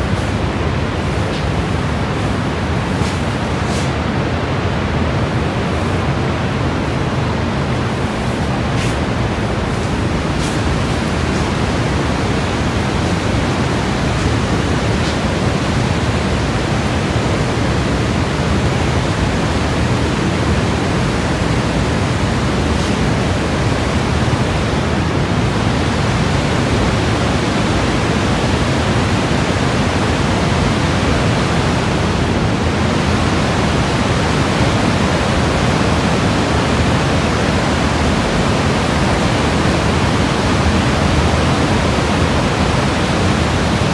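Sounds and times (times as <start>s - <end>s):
waterfall rushing: 6.0s - 43.9s.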